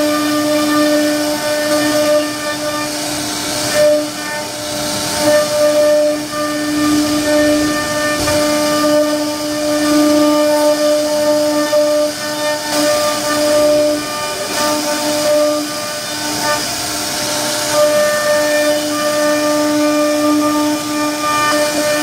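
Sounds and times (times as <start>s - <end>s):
bit cutting wood hiss: 0.0s - 22.0s
router spindle whine: 0.0s - 22.0s.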